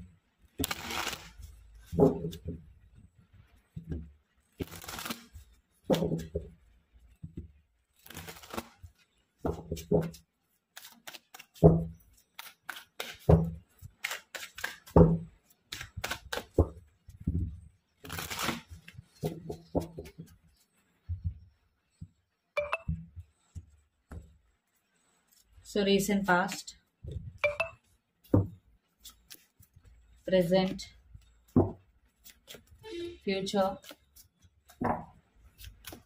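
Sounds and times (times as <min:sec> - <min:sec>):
cards shuffling: 0:00.6 - 0:02.4, 0:04.6 - 0:06.1, 0:08.0 - 0:08.8, 0:10.0 - 0:15.0, 0:15.7 - 0:16.7, 0:18.0 - 0:20.3, 0:29.0 - 0:29.8, 0:32.1 - 0:32.8, 0:33.7 - 0:34.9, 0:35.5 - 0:36.0
dull thuds: 0:01.8 - 0:02.8, 0:16.6 - 0:17.7, 0:28.2 - 0:28.6.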